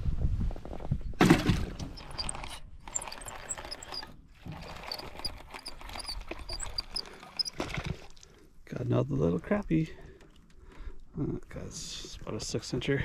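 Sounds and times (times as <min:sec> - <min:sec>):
fishing reel gears ticking: 0:02.0 - 0:07.6.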